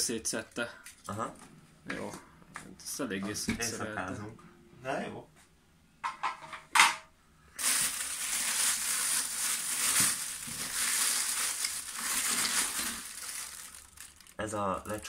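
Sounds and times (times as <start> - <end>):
handling noises: 7.6 - 14.4
plastic bag rustling: 7.6 - 15.0.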